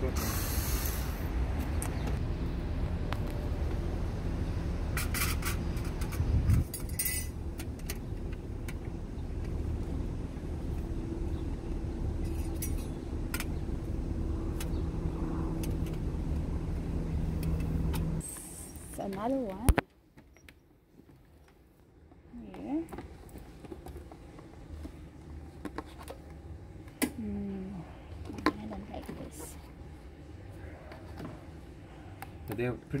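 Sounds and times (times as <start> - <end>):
car engine humming: 0.0 - 19.7.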